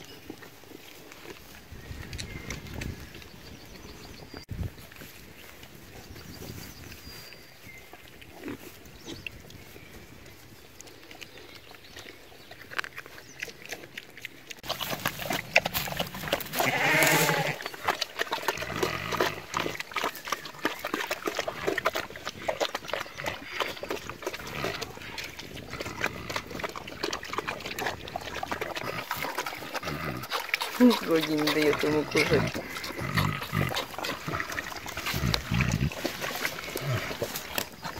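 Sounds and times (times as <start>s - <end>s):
pigs chomping: 0.0s - 7.2s, 7.8s - 37.9s.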